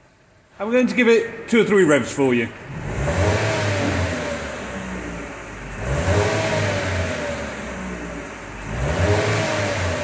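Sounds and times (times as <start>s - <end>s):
car engine revving: 2.6s - 10.0s.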